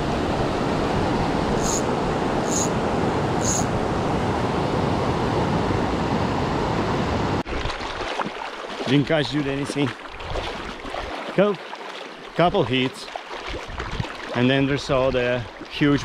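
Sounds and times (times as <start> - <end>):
short high-pitched chirps: 1.6 - 1.8, 2.5 - 2.7, 3.4 - 3.7.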